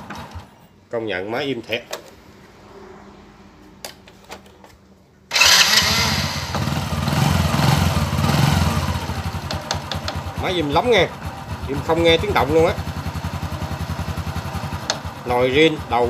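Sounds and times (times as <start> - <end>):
motorcycle engine idling: 5.7 - 16.0.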